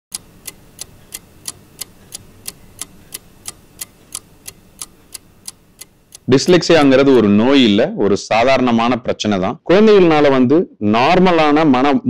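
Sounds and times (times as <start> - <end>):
clock ticking: 0.1 - 7.2.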